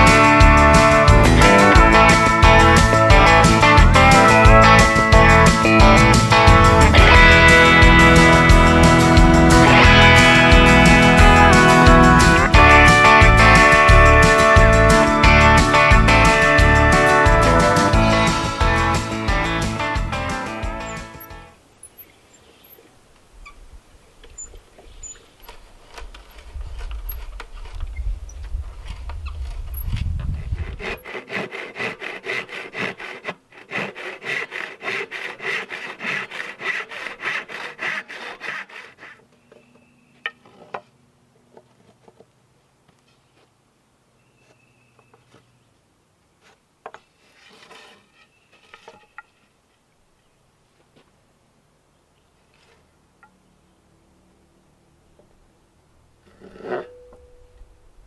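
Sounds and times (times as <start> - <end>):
auger bit creaking in wood: 18.9 - 31.5, 46.9 - 49.5
handsaw knocking on wood: 30.6 - 39.2
saw blade ringing: 56.7 - 57.6.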